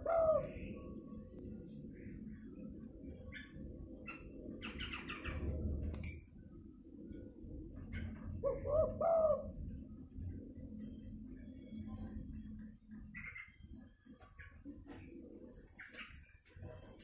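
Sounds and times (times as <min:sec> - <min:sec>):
dove cooing: 0:00.0 - 0:00.9, 0:07.8 - 0:09.8
bird chirps: 0:03.3 - 0:06.4.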